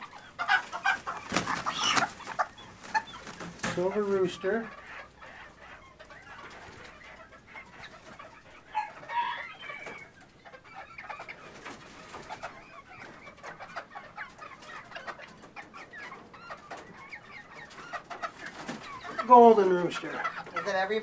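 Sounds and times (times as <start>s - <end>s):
chickens clucking and calling: 0.0s - 21.0s
clicks and rustles: 1.2s - 3.8s.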